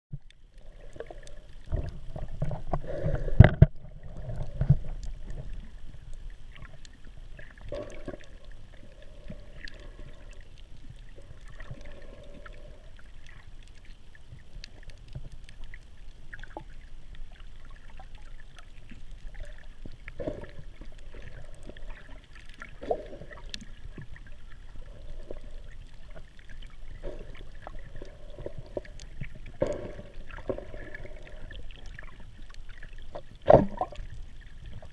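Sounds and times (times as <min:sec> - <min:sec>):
muffled underwater water movement: 0:00.1 - 0:34.9.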